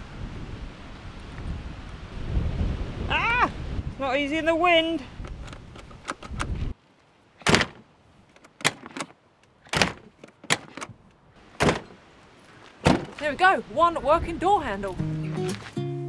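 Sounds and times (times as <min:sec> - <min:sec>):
wind rumble on microphone: 0:00.0 - 0:06.8, 0:13.6 - 0:15.2
door handle and latch clicking: 0:07.4 - 0:11.0.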